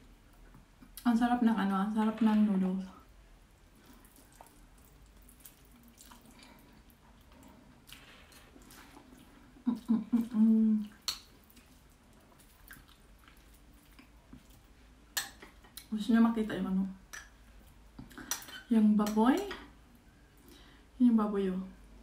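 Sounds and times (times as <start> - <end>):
chewing and slurping noodles: 3.8 - 9.6
person humming: 9.7 - 10.9
wet mouth clicks: 10.8 - 11.8.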